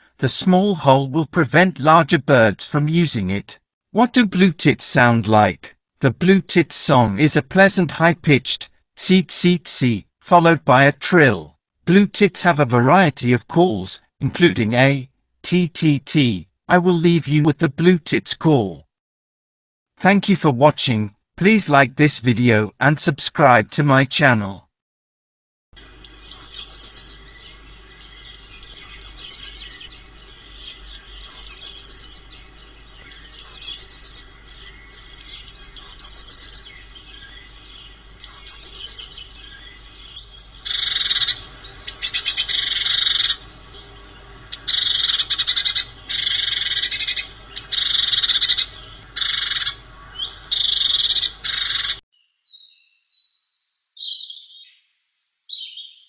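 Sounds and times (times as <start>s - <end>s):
bird harsh rattling calls: 28.2s - 52.0s.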